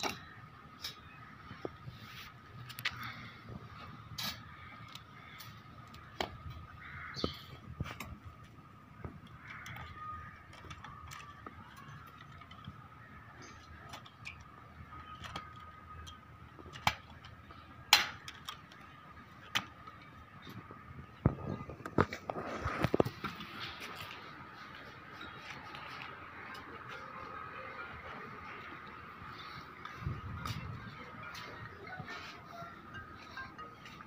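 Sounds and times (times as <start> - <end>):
faint steady high tone: 26.5 - 34.0.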